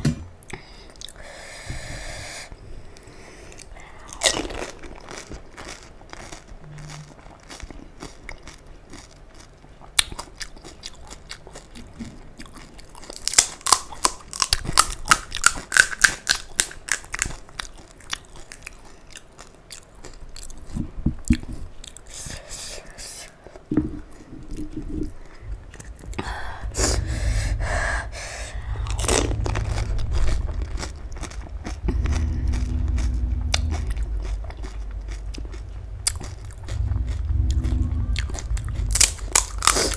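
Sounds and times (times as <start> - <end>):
crunching and chewing: 2.9 - 22.2, 28.7 - 39.9.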